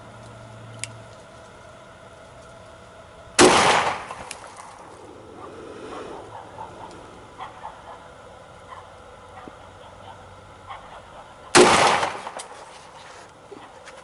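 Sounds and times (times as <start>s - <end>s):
pistol shot with echo: 3.4s - 4.3s, 11.6s - 12.5s.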